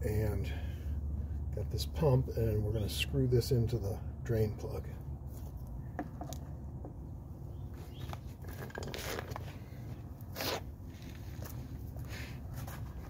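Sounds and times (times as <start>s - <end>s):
scuffing on pavement: 7.7s - 13.0s.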